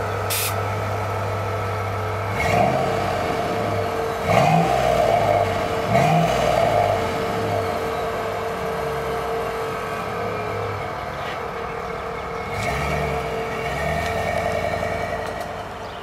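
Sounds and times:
truck engine idling and revving: 0.0 - 16.0.

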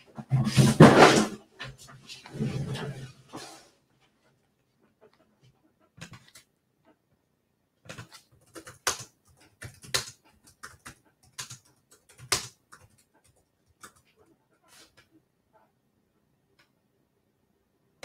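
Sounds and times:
sharp clicks and taps: 7.9 - 14.2.

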